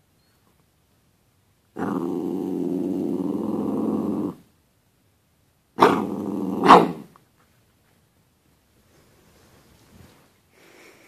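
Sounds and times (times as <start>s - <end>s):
dog growling: 1.8s - 4.5s, 5.8s - 7.1s.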